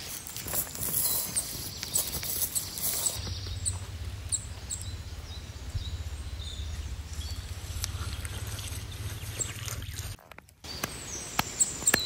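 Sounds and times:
steady low rumble: 3.2 - 9.4.

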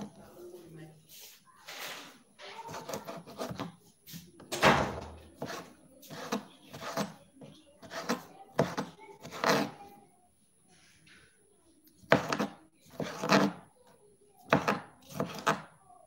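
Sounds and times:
knife chopping on cutting board: 2.7 - 3.7, 4.7 - 7.1, 7.8 - 9.8, 12.1 - 13.6, 14.5 - 15.7.

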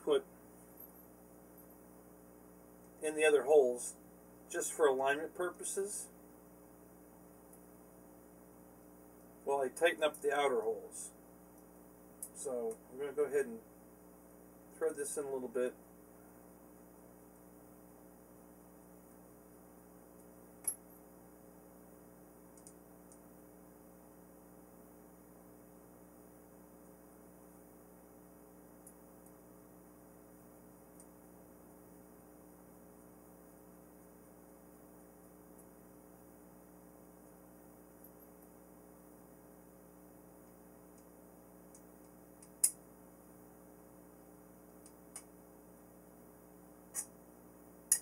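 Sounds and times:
faint room hum: 0.0 - 48.0
faint ticks: 22.5 - 23.3
sharp small click: 41.8 - 42.8, 46.9 - 47.2.

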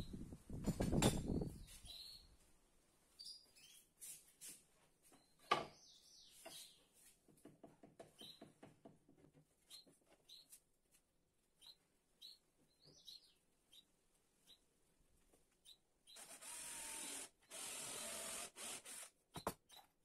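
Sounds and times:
faint bird chirps: 1.4 - 2.4.

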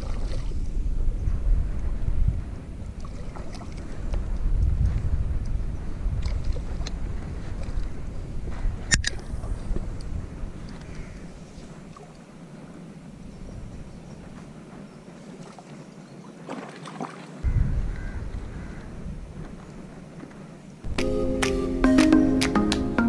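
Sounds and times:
music: 20.9 - 23.0.

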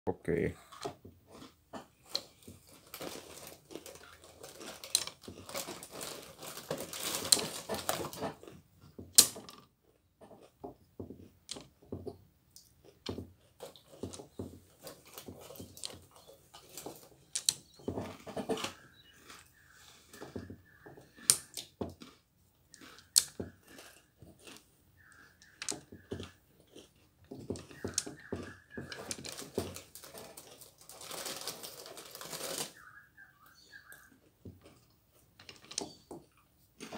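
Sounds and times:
chewing: 0.6 - 8.7, 12.5 - 31.3
abacus beads clacking: 0.7 - 36.9.

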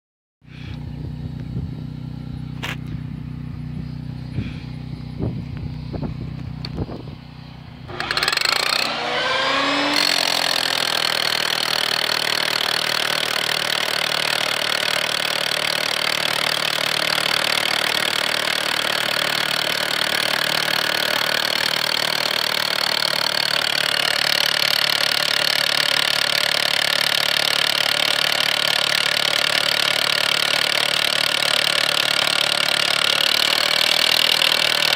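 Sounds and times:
low hum: 0.5 - 10.2
rotary hammer drill drilling: 7.9 - 34.9.

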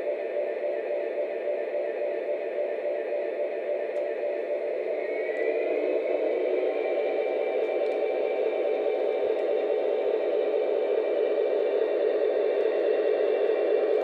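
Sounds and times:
high turbine whine: 0.0 - 14.0
model train turbine rumble: 4.9 - 14.0.

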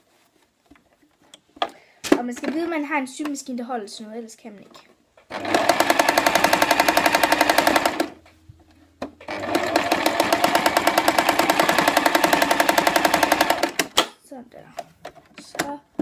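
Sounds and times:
sewing machine stitching: 5.3 - 8.2, 9.2 - 13.9.

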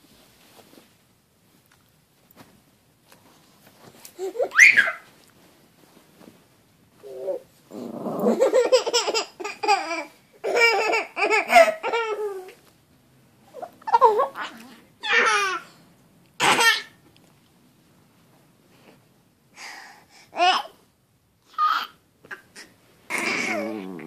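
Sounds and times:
baby laughing and squealing: 4.2 - 5.1, 8.3 - 12.6, 15.0 - 15.6.

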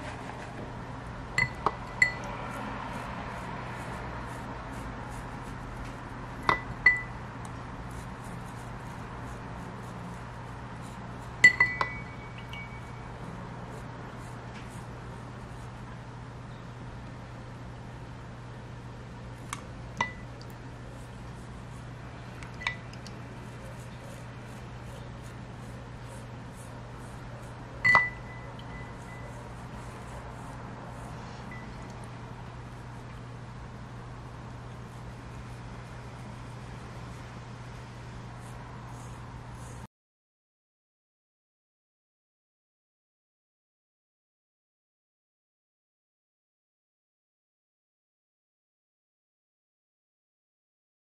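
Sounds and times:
bristle scratching: 1.6 - 15.9, 20.8 - 33.3, 34.5 - 39.9
toothbrush scrubbing: 1.8 - 6.8, 7.4 - 15.8, 20.8 - 33.3, 34.5 - 39.9
clink against glass: 11.4 - 12.9.

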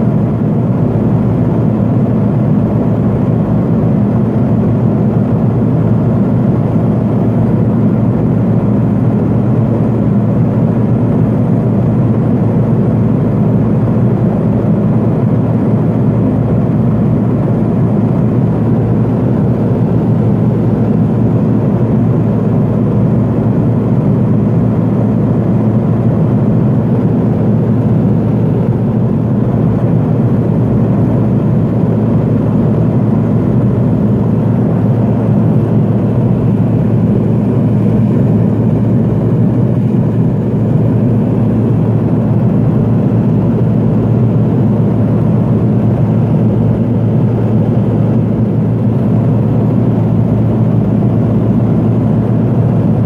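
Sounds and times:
turboprop engine cabin noise: 0.0 - 53.0.

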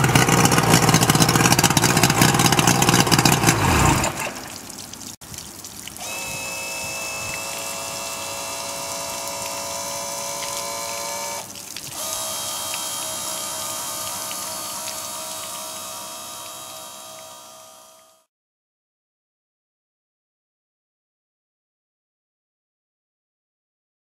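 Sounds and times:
outboard motor running: 0.0 - 4.6, 6.0 - 18.3
water splashing onto wet concrete: 0.1 - 15.8.

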